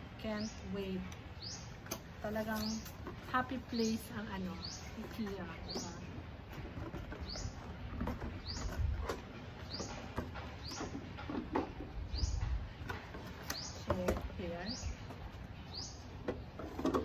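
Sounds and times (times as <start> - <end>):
cardboard and plastic scraping: 5.0 - 10.4.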